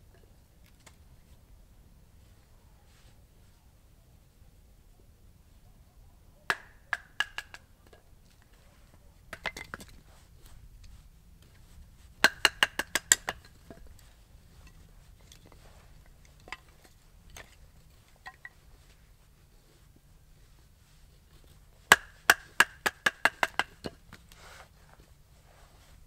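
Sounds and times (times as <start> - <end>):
wooden stick striking knife blade: 12.2 - 13.9.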